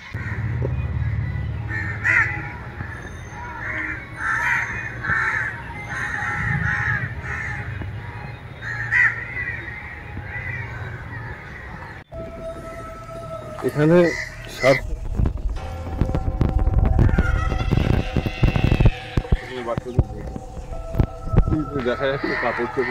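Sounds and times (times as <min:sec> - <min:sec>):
crows cawing: 0:00.0 - 0:12.0, 0:13.6 - 0:14.9, 0:17.0 - 0:22.9
low steady rumble: 0:14.2 - 0:21.8.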